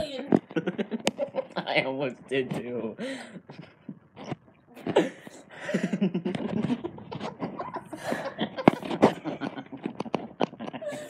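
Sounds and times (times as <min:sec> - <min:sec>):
person laughing: 0:04.9 - 0:11.0.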